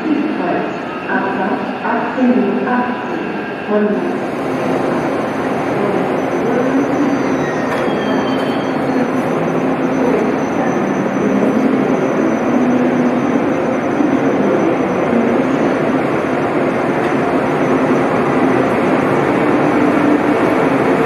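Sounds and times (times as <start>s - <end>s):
train rumbling slowly: 1.4s - 21.0s
faint high squeal: 6.8s - 9.2s.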